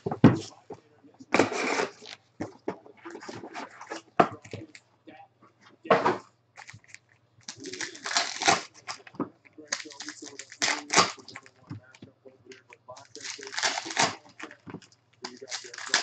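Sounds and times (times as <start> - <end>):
wrappers rustling and crinkling: 6.6 - 16.0.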